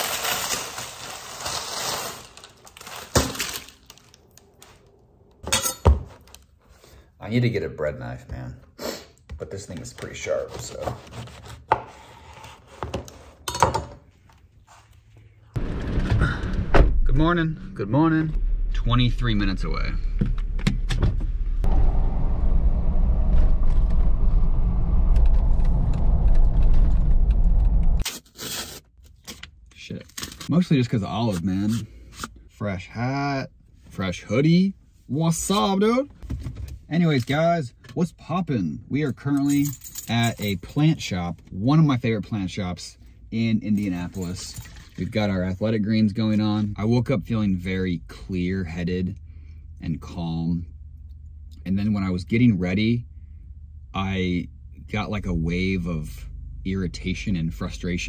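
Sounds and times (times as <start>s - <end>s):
paper bag crinkling: 0.0s - 4.8s
car driving rumble: 15.6s - 28.0s, 46.4s - 58.0s.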